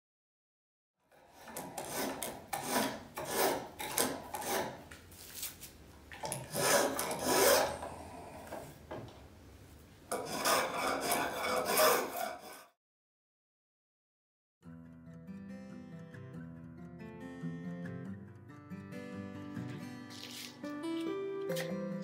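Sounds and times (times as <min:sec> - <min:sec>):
spokeshave scraping wood: 0:01.4 - 0:05.5, 0:06.5 - 0:08.0, 0:10.1 - 0:12.8.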